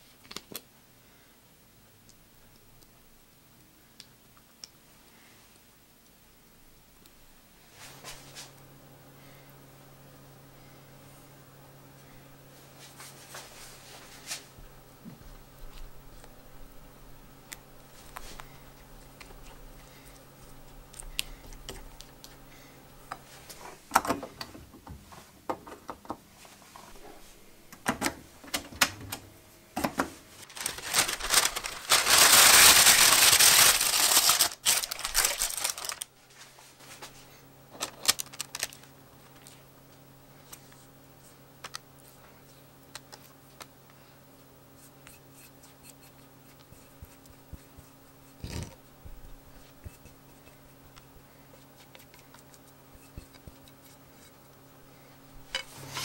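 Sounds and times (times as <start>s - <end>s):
baking paper crinkling: 30.3s - 39.7s.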